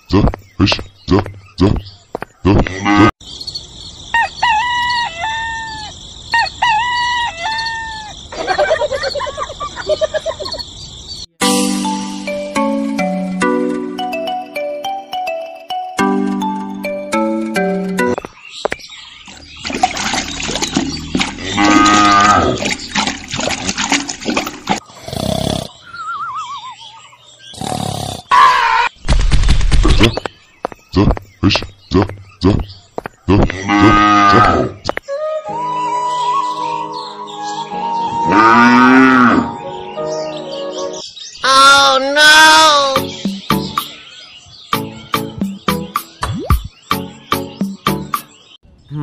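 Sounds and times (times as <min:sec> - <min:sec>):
rooster crowing: 0:04.2 - 0:08.2
cow mooing: 0:21.4 - 0:22.6, 0:33.6 - 0:34.7, 0:38.2 - 0:39.6.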